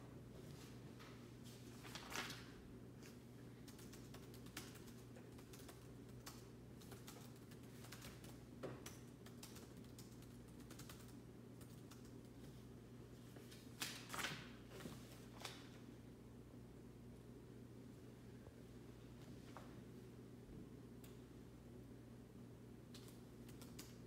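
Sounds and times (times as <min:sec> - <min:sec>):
low steady hum: 0:00.0 - 0:24.0
typing on laptop keyboard: 0:03.6 - 0:12.5, 0:22.9 - 0:24.0.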